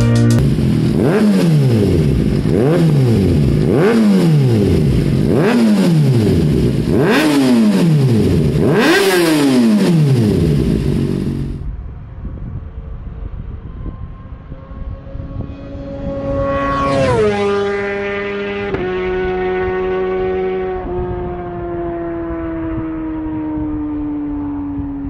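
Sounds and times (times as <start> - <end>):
motorcycle engine revving: 0.0 - 11.7, 13.4 - 25.0
roadside background noise: 0.0 - 25.0.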